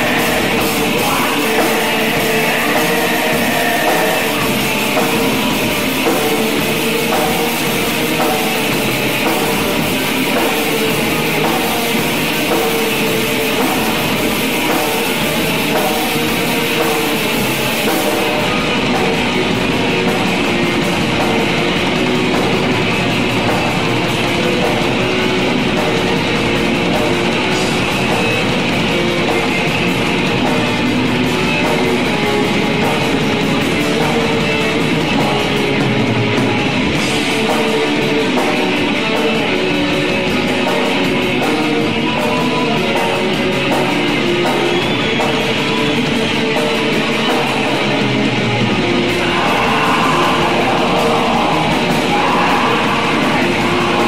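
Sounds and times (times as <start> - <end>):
metal band playing live: 0.0 - 54.0.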